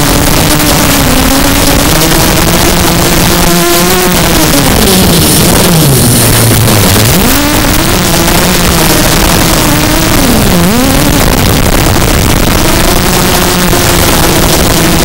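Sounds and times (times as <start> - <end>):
quadcopter motors buzzing: 0.0 - 15.0
loud rushing hiss: 3.8 - 10.2.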